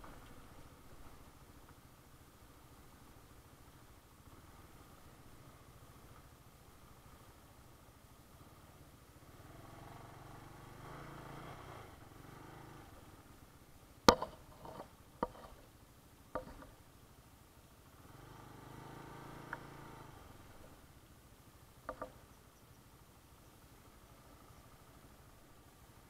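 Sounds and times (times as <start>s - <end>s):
vehicles passing on road: 0.0s - 26.0s
sharp knocks: 14.1s - 15.6s, 16.4s - 16.7s.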